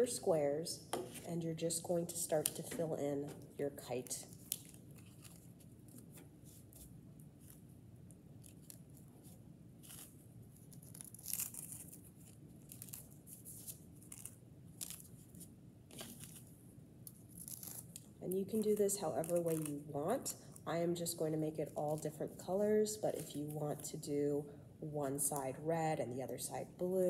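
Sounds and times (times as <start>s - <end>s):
low room hum: 0.0s - 27.0s
tissue paper crinkling: 4.2s - 7.6s, 8.5s - 16.5s.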